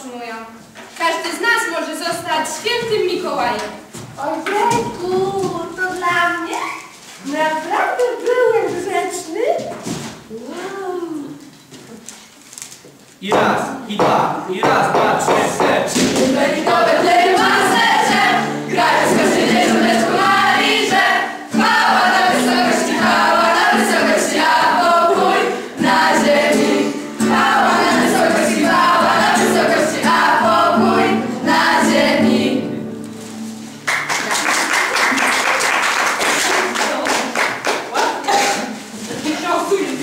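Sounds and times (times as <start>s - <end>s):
acoustic guitar: 0.6s - 40.0s
children singing: 15.0s - 32.9s
applause and clapping: 33.8s - 38.5s.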